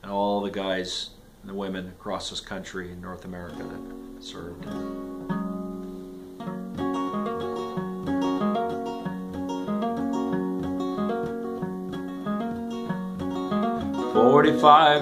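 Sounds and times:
acoustic guitar picking: 3.0s - 15.0s.

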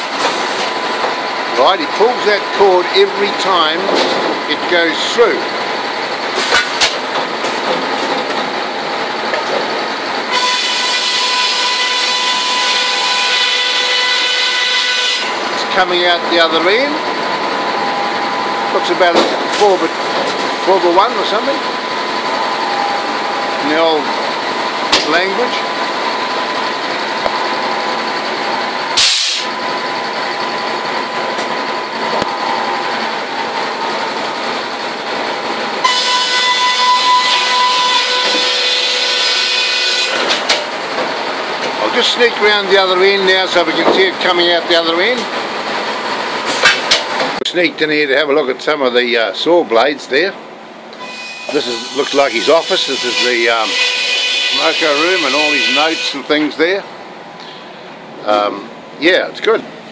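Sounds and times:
circular saw cutting wood: 10.3s - 16.9s, 35.9s - 40.3s, 51.0s - 56.8s
short hiss: 29.0s - 29.5s.

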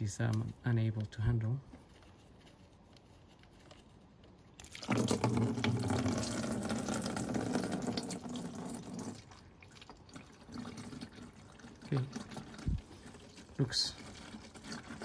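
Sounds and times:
fluid gushing into funnel: 4.6s - 15.0s.

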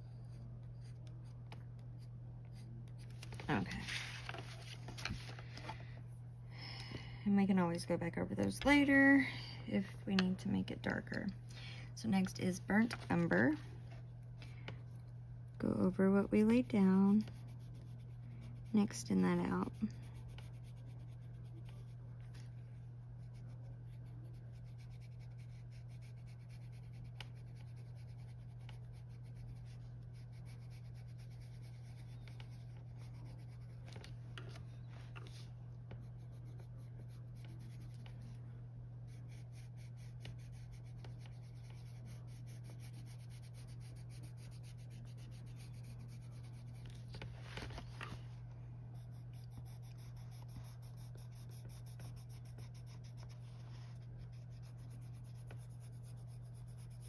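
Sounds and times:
steady low hum: 0.0s - 57.0s
colored pencil scratching paper: 15.6s - 22.6s, 23.2s - 34.6s, 35.2s - 38.4s, 39.1s - 48.1s, 49.0s - 57.0s.

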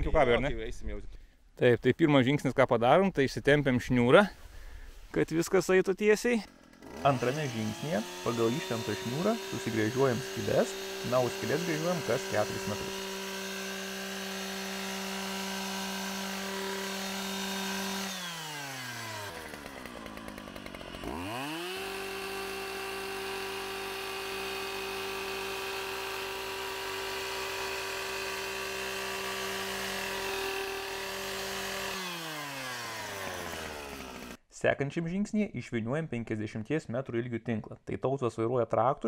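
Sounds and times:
post-hole auger drilling: 6.4s - 34.4s.

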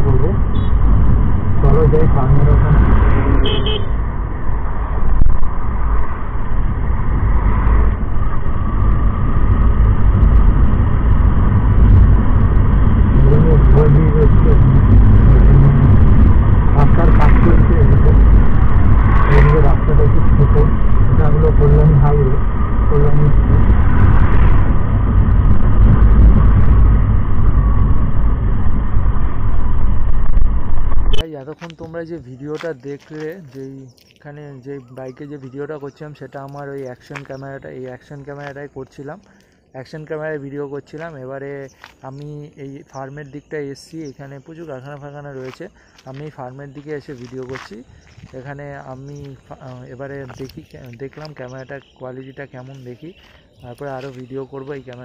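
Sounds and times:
motorcycle riding noise: 0.0s - 31.2s
wind rumble: 0.0s - 55.0s.

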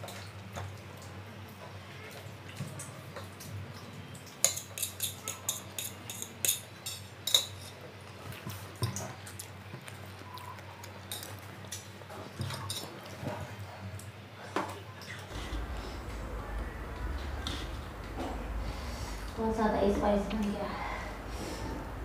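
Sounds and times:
forks clinking on steel plates: 4.4s - 7.7s.

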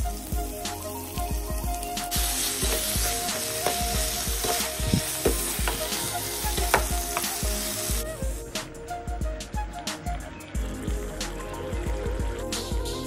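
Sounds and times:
chicken sizzling in hot oil: 0.0s - 8.1s
chopsticks clicking and scraping pan: 3.6s - 7.3s.

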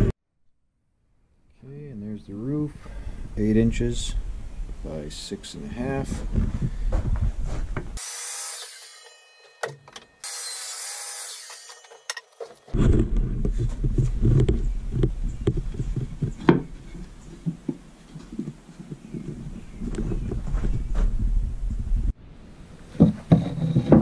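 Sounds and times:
wooden boards knocking and rubbing: 11.6s - 19.4s, 22.9s - 24.0s.

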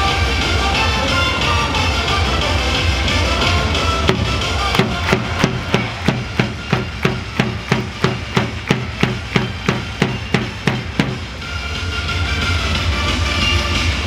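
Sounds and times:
crowd beating time: 3.1s - 11.6s.

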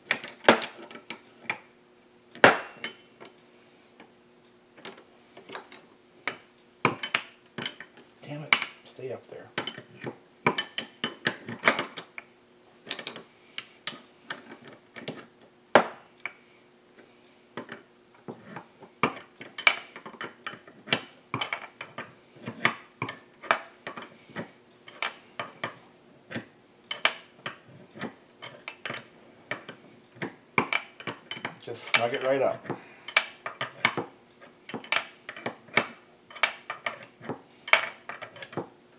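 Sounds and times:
wrenches clicking and clinking: 19.2s - 34.0s.

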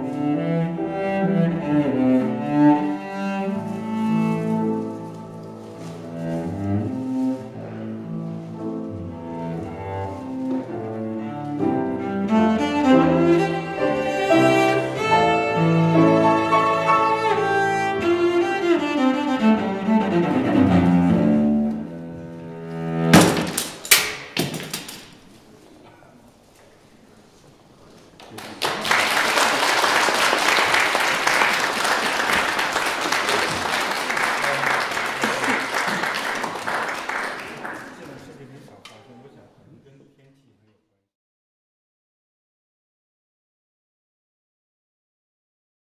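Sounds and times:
bowed cello notes: 0.0s - 23.3s
piano accompaniment: 0.0s - 23.6s
audience clapping: 28.2s - 38.4s.

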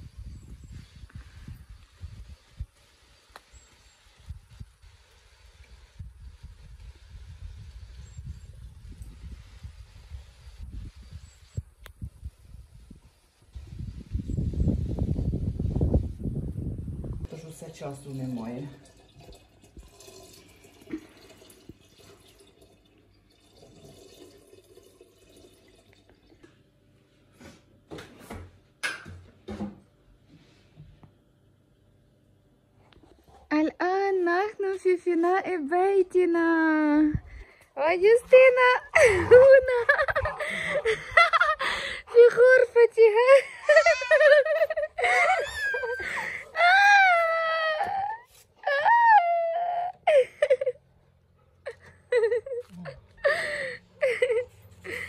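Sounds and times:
faint running water: 17.3s - 26.5s
water dripping: 17.8s - 26.5s
baby crying: 43.5s - 50.0s.

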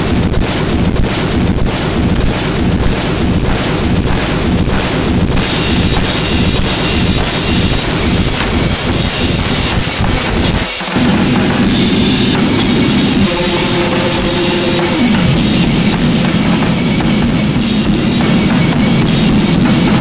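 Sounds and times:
harsh distorted noise music: 0.0s - 20.0s
held tones: 11.0s - 20.0s.

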